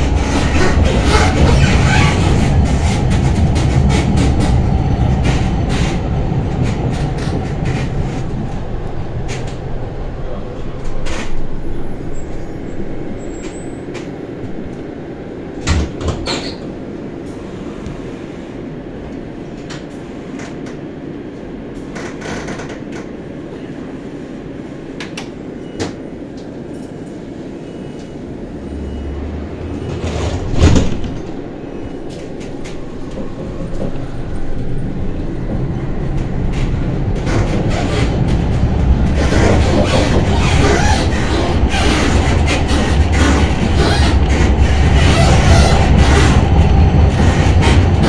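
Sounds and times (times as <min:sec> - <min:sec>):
tram interior rumble: 0:00.0 - 0:48.0.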